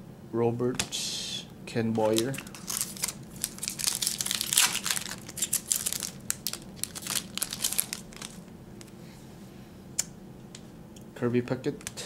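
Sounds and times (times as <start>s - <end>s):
foil wrapper crinkling and tearing: 2.0s - 8.9s.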